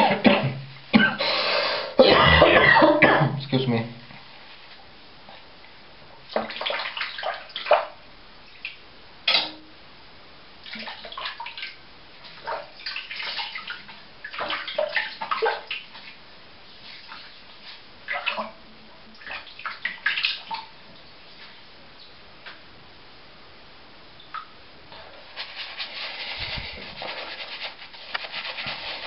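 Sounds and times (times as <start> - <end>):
water splashing: 6.3 - 8.0, 10.6 - 16.2, 18.1 - 20.8.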